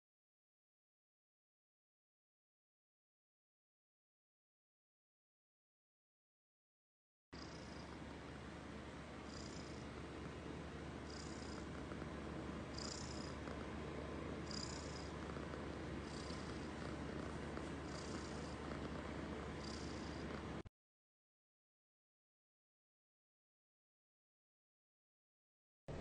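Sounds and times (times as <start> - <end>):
kitten purring: 7.4 - 20.7.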